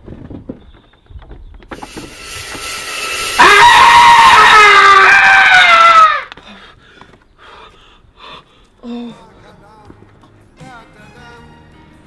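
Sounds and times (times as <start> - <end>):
circular saw whine: 1.7 - 5.9.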